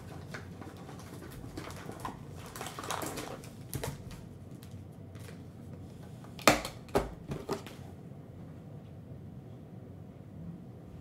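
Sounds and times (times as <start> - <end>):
foil card packs rustling: 0.0 - 5.5.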